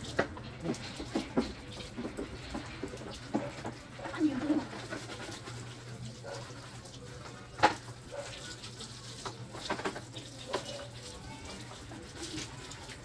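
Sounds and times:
hose water splashing: 0:00.0 - 0:13.0.

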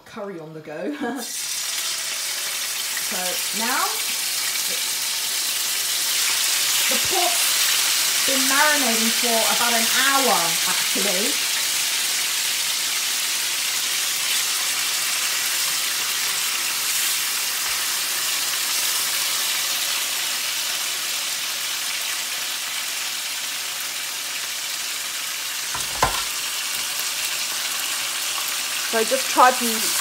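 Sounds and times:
meat sizzling in a frying pan: 0:01.2 - 0:30.0
sharp knock: 0:25.8 - 0:26.3.

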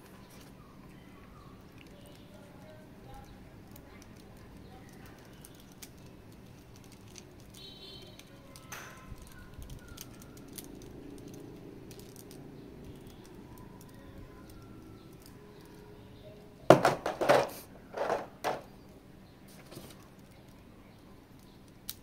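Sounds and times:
small hard parts handled: 0:03.6 - 0:15.8, 0:16.7 - 0:18.7.

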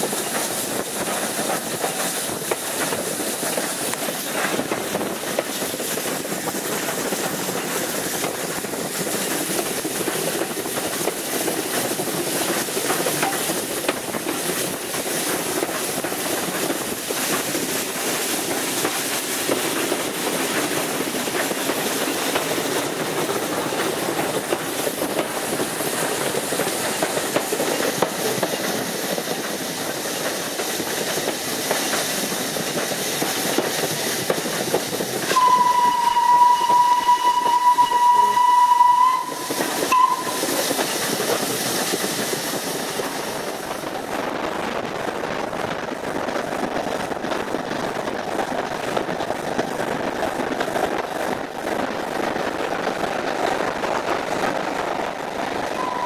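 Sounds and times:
steam locomotive running: 0:00.0 - 0:56.0
steam whistle blast: 0:35.3 - 0:40.7, 0:55.8 - 0:56.0.

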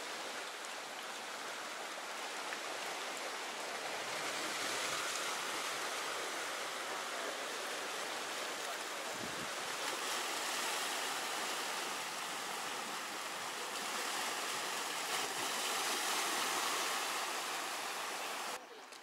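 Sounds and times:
sea surf washing over rocks: 0:00.0 - 0:18.6.

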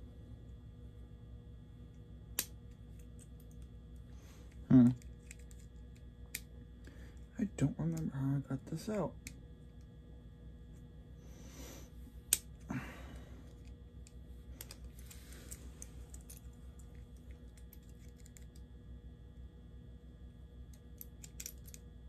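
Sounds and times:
small parts clicking and tapping: 0:04.5 - 0:07.3, 0:13.4 - 0:18.7, 0:20.7 - 0:21.9.

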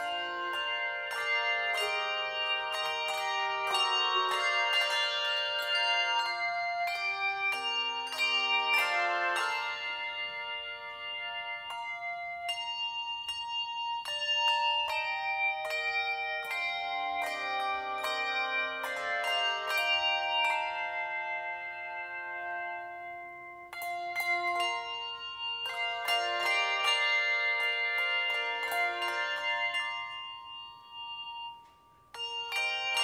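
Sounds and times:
handbells ringing chords: 0:00.0 - 0:33.0.

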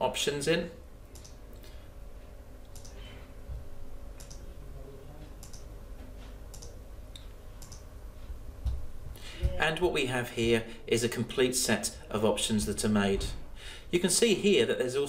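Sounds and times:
faint steady hum: 0:00.0 - 0:15.0
computer mouse clicking: 0:01.1 - 0:01.4, 0:02.6 - 0:03.0, 0:04.2 - 0:04.4, 0:05.4 - 0:05.7, 0:06.5 - 0:07.9.

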